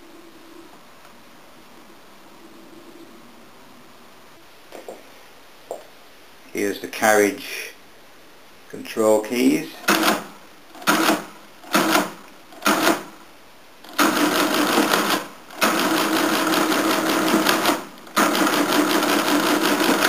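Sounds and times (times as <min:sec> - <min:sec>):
mechanical calculator rattling: 0:09.8 - 0:13.1, 0:13.8 - 0:20.0.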